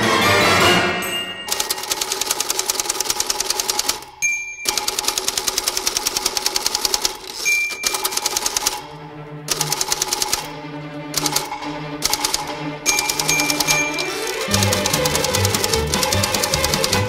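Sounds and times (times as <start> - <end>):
typewriter margin bell ding: 1.0 - 6.1, 6.9 - 8.8, 12.9 - 15.3
typewriter keys striking: 1.5 - 8.8, 9.5 - 10.5, 11.2 - 17.0.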